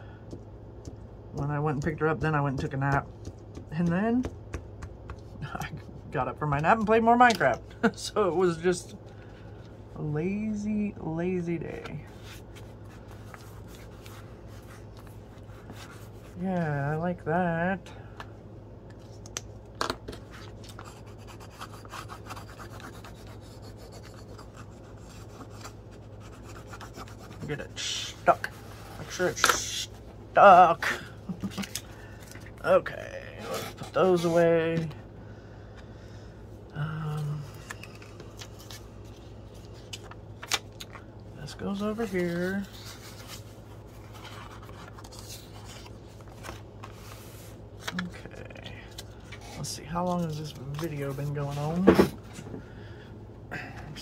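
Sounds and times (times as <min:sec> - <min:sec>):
steady low hum: 0:00.0 - 0:54.0
paper pages rustling: 0:11.9 - 0:16.4, 0:37.6 - 0:41.1, 0:41.7 - 0:51.9
tool scratching over paper: 0:20.7 - 0:27.5.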